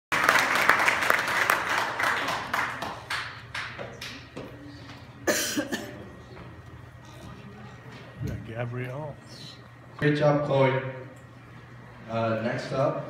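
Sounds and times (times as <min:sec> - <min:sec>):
audience applauding: 0:00.1 - 0:04.4.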